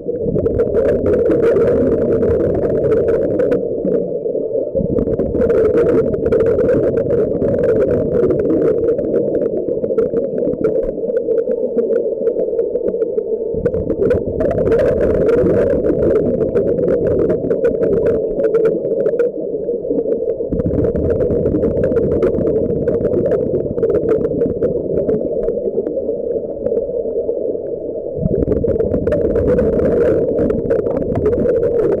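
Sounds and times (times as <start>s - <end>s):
exhaled bubbles underwater: 0.0s - 32.0s.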